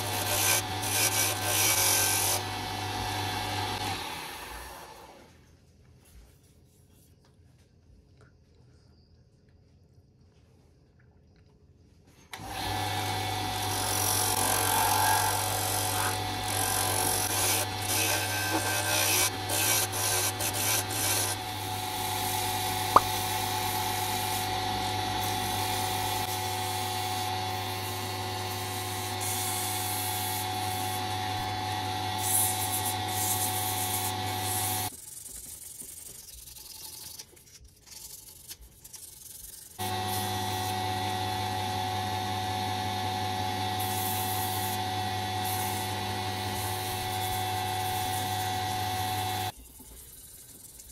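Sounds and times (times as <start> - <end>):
sanding scratching and hiss: 0.0 - 2.4, 13.7 - 24.6, 32.2 - 40.2, 45.4 - 45.9
lathe motor humming: 0.0 - 4.8, 12.4 - 32.2, 39.8 - 49.5.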